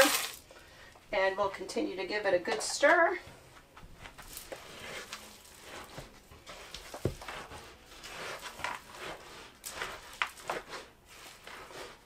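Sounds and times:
spoon scraping cookie dough: 0:04.3 - 0:12.0.

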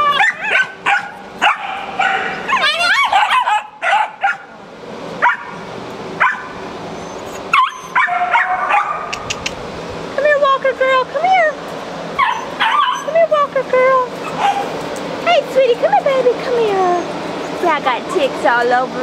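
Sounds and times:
dogs yipping and whining: 0:00.0 - 0:04.5, 0:06.2 - 0:09.5, 0:11.5 - 0:13.2, 0:14.2 - 0:14.8
dogs barking: 0:00.0 - 0:04.6, 0:05.2 - 0:06.6, 0:07.4 - 0:09.3, 0:12.2 - 0:13.1, 0:14.2 - 0:14.8.

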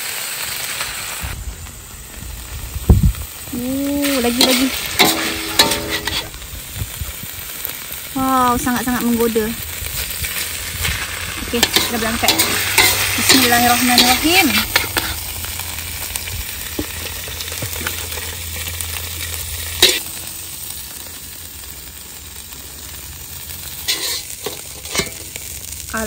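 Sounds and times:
wok sizzling: 0:00.0 - 0:26.0
metal spatula scraping wok: 0:03.6 - 0:06.4, 0:09.9 - 0:20.3, 0:23.6 - 0:25.6
sharp metal clank: 0:04.4 - 0:06.3, 0:11.6 - 0:15.1, 0:23.9 - 0:25.3.

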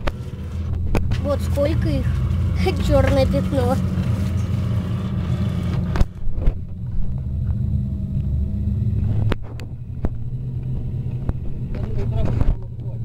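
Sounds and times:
boat motor rumbling: 0:00.0 - 0:13.0.

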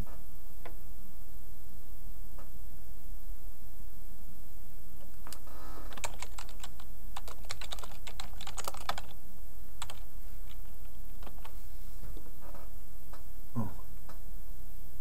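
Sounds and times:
typing on computer keyboard: 0:05.0 - 0:09.2, 0:09.8 - 0:11.5.

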